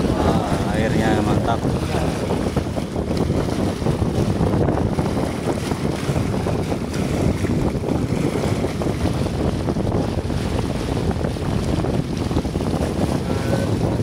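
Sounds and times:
low engine drone: 0.0s - 2.1s
water splashing along a hull: 0.0s - 14.0s
wind buffeting the microphone: 0.0s - 14.0s.

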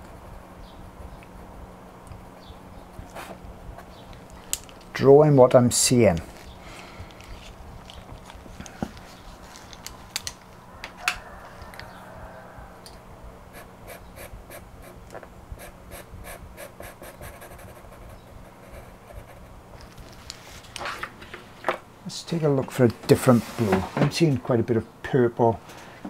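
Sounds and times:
low steady hum: 0.0s - 26.0s
pencil scratching on paper: 15.6s - 19.5s.

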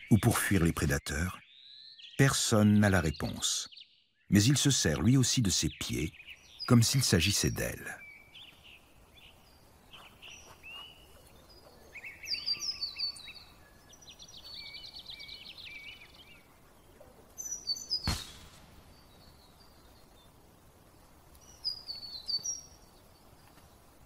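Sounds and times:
bird trill: 0.0s - 20.4s, 21.4s - 23.0s
birds chirping and calling: 0.0s - 24.0s
short sharp swish: 18.0s - 18.7s.

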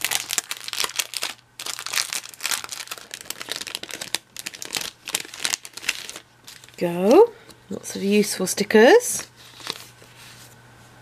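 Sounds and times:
plastic sleeve crinkling: 0.0s - 7.3s, 9.2s - 10.2s.

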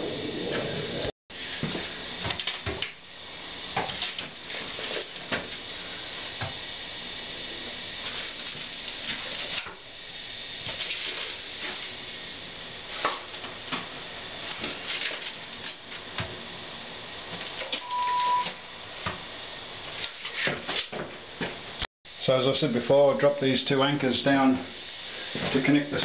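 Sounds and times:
steady beep: 17.8s - 18.6s.

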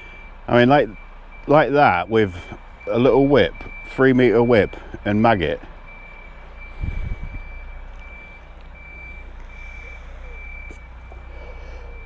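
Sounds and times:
low rumble: 6.0s - 12.0s.

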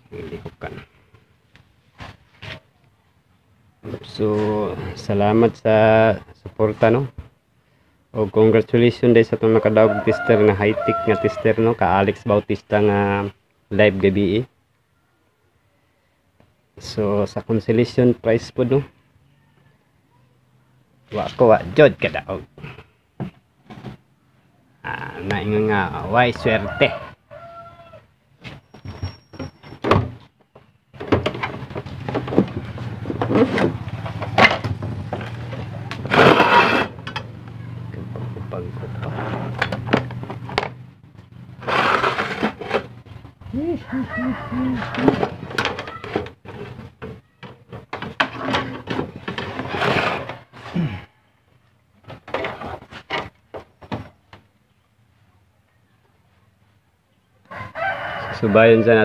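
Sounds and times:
tools clattering on a bench: 31.0s - 35.4s, 39.4s - 40.8s, 44.9s - 50.3s.

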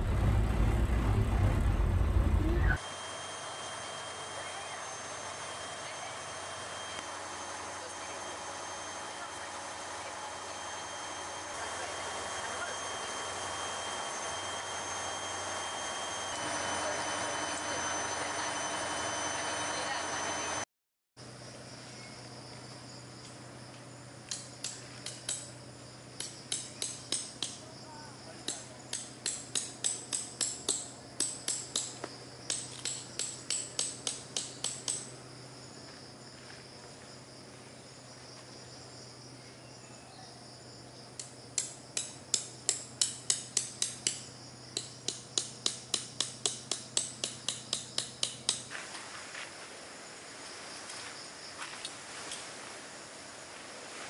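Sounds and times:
steady insect buzz: 21.2s - 54.0s.

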